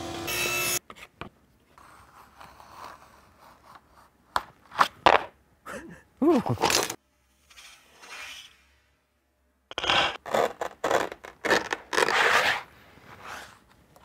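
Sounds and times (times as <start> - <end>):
utility knife scratching veneer: 10.2 - 13.5.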